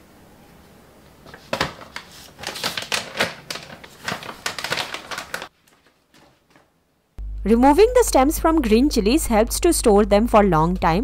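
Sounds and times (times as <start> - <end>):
plastic bag crinkling: 1.3 - 6.6.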